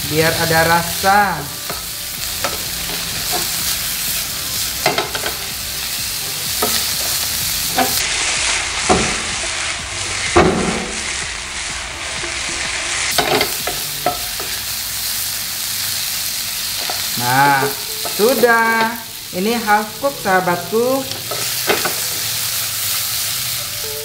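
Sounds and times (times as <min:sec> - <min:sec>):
shrimp sizzling in a frying pan: 0:00.0 - 0:24.0
wooden spatula scraping a pan: 0:06.6 - 0:09.6.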